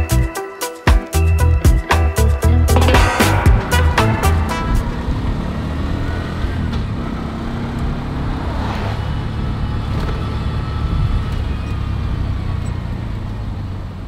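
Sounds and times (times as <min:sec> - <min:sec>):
road noise: 0:03.6 - 0:14.0.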